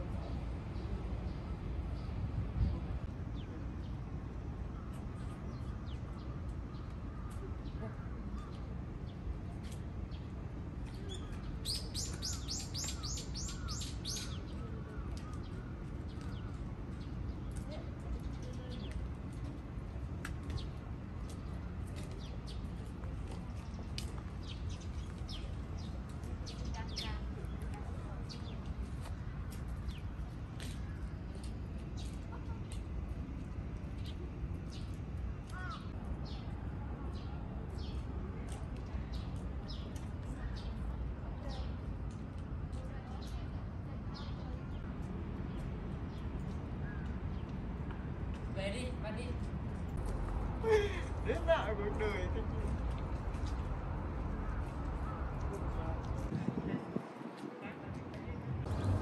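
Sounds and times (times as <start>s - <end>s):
birds chirping: 10.1s - 19.1s, 20.4s - 36.5s
low rumble: 58.4s - 59.0s.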